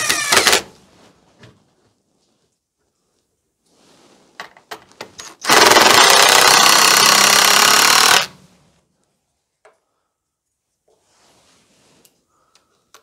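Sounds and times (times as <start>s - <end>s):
power driver driving screw into wood: 0.0s - 0.7s, 5.2s - 8.4s.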